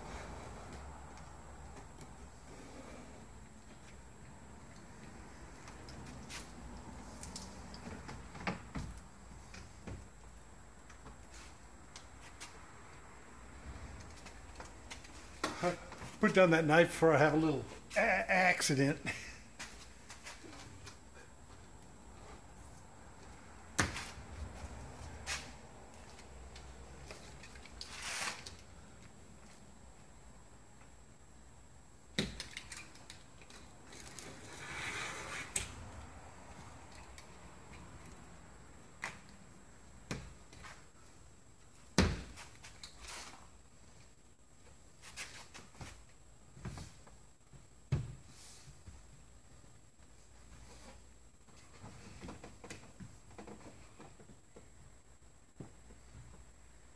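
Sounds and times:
scraping rustle: 27.2 - 28.6.

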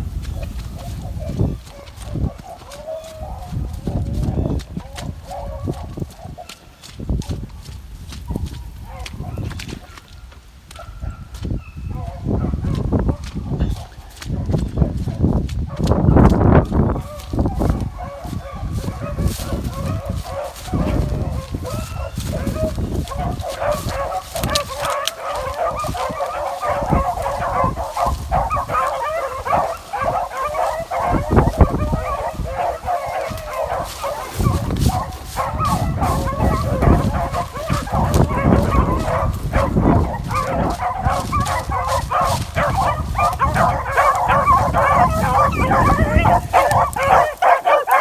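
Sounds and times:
hounds baying: 0.0 - 48.0.

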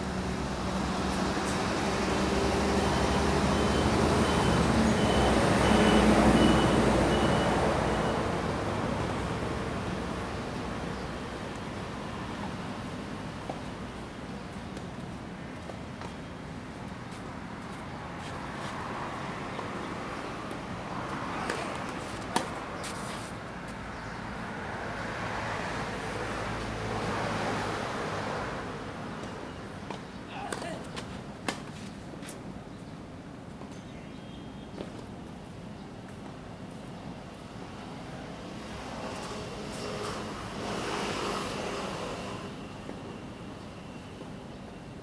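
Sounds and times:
outdoor background noise: 0.0 - 45.0
faint high beep: 2.8 - 8.2
tennis ball hitting racket: 21.4 - 23.0.

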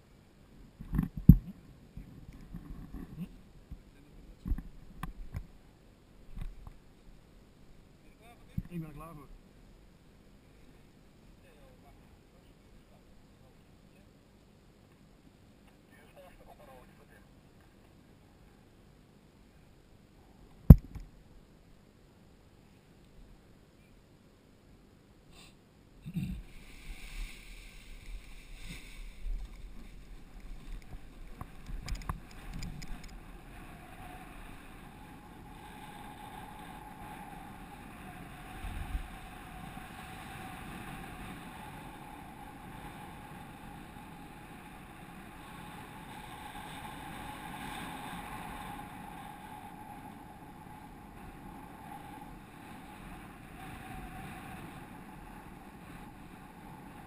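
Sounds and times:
faint steady hum: 0.0 - 57.0
wind rushing over microphone: 26.1 - 57.0.

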